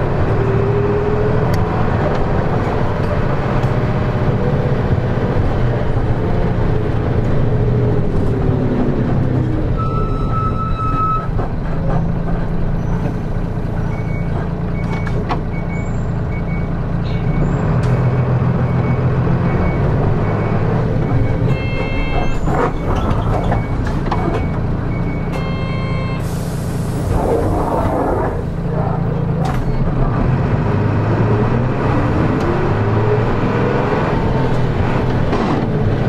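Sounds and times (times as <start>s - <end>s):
bus diesel engine running: 0.0s - 36.0s
short electronic beeps: 18.6s - 26.3s.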